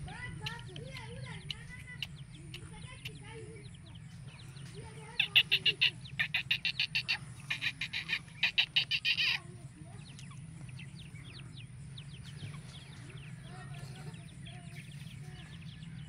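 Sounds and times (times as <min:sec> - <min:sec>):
small birds chirping: 0:00.0 - 0:16.0
bird harsh rattling call: 0:04.5 - 0:11.5.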